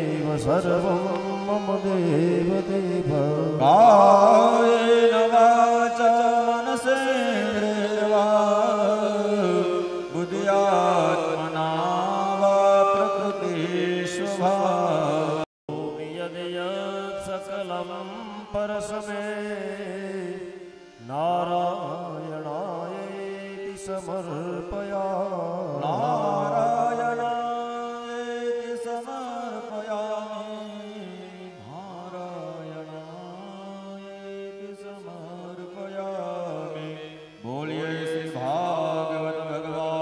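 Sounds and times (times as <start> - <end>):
person chanting: 0.0 - 40.0.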